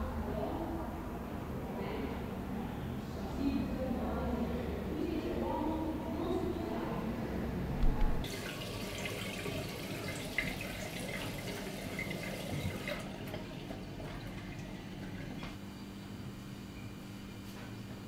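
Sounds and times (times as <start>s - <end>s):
tap water splashing into sink: 8.2s - 15.6s.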